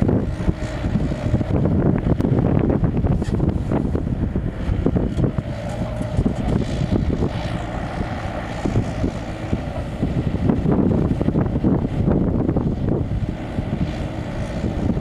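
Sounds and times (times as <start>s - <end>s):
excavator diesel engine: 3.4s - 15.0s.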